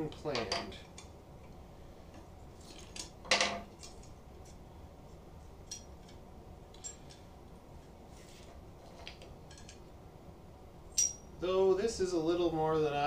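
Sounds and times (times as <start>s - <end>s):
parts clattering on a workbench: 0.2s - 0.8s, 2.6s - 4.1s, 5.6s - 7.3s, 8.2s - 9.8s
light metallic clinks: 6.7s - 7.3s, 10.9s - 11.4s.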